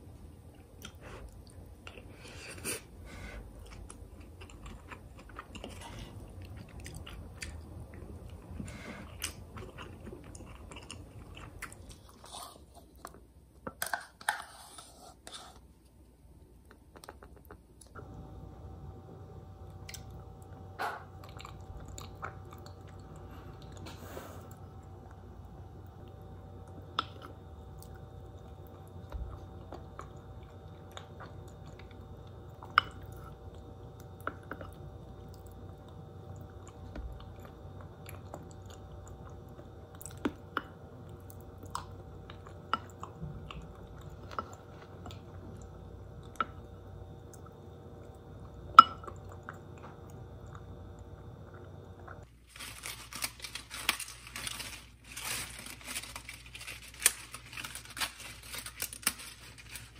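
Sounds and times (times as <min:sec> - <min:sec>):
steady low hum: 0:00.0 - 0:59.9
person chewing: 0:00.6 - 0:13.2, 0:21.2 - 0:25.2, 0:26.0 - 0:52.3
lettuce leaves crinkling: 0:52.3 - 0:59.9.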